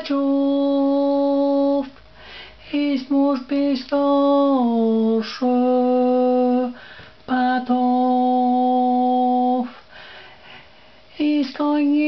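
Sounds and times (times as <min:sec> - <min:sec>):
person singing long notes: 0:00.0 - 0:01.9, 0:02.7 - 0:09.8.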